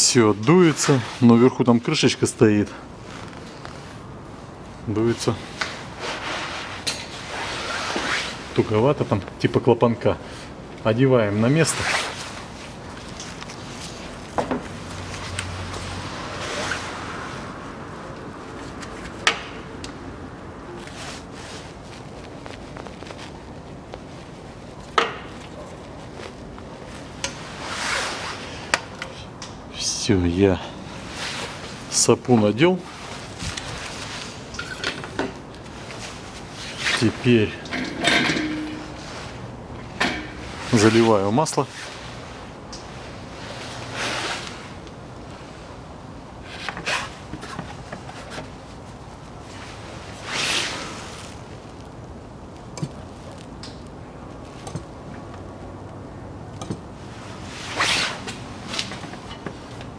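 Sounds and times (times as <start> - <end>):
rubber rubbing: 5.6 - 8.7, 11.6 - 17.0, 20.8 - 28.4, 46.4 - 52.0, 56.6 - 59.9.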